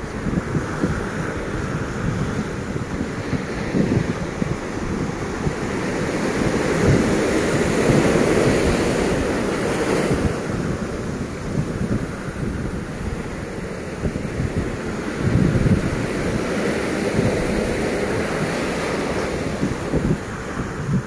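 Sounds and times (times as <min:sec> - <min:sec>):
surf washing up beach: 0:00.0 - 0:21.0
wind buffeting microphone: 0:00.0 - 0:21.0.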